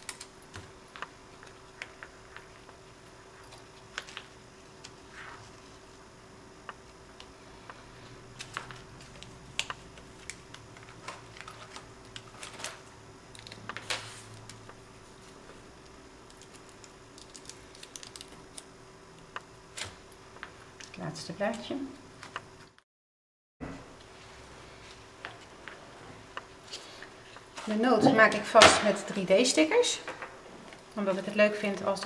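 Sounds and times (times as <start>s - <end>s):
faint steady hum: 0.0s - 22.8s, 23.6s - 32.0s
fingers handling paper: 7.6s - 12.8s, 16.3s - 18.6s.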